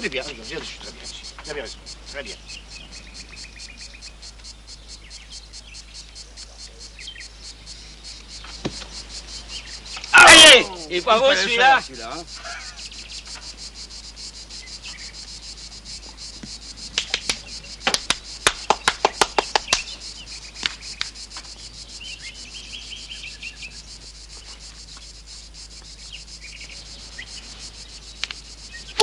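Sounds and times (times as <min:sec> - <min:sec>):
insects chirping: 0:00.0 - 0:29.0
person clapping hands: 0:17.0 - 0:20.0, 0:20.6 - 0:21.1.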